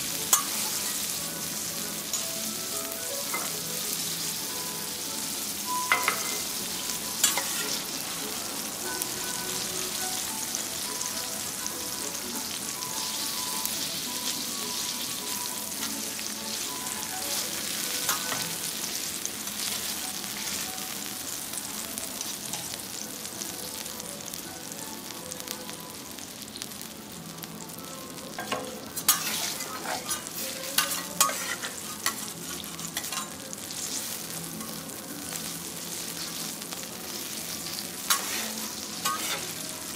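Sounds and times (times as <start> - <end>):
food sizzling on griddle: 0.0 - 39.9
metal utensils scraping griddle: 7.2 - 7.9, 28.4 - 33.4, 38.0 - 39.7.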